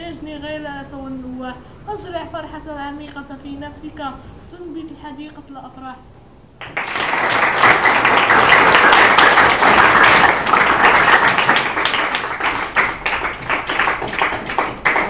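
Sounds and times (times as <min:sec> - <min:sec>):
children applauding: 0:06.6 - 0:15.0.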